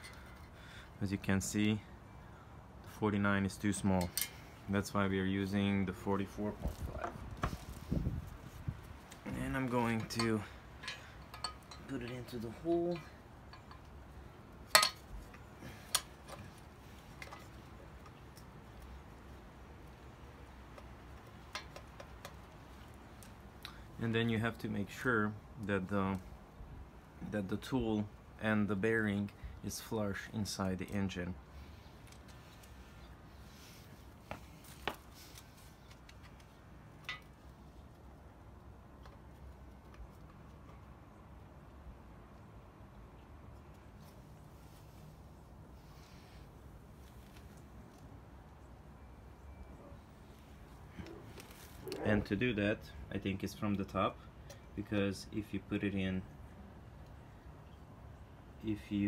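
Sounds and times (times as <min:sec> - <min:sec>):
metal clinks: 0:09.9 - 0:13.9
faint metal ticks: 0:09.9 - 0:14.0.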